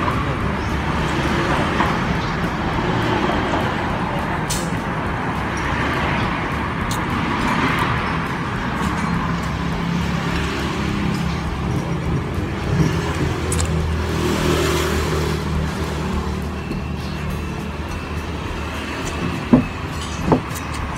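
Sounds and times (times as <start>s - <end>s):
road traffic: 0.0s - 20.9s
sharp click: 4.5s - 4.8s.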